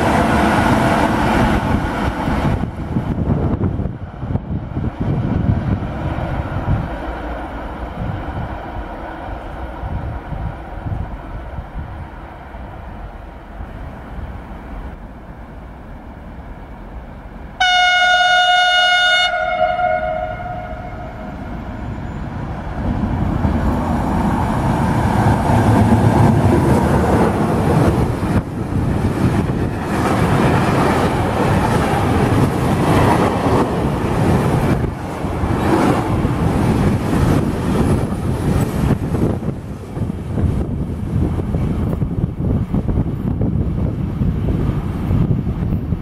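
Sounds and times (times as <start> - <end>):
train wagons rumbling on rails: 0.0 - 46.0
train horn blast: 17.6 - 21.6.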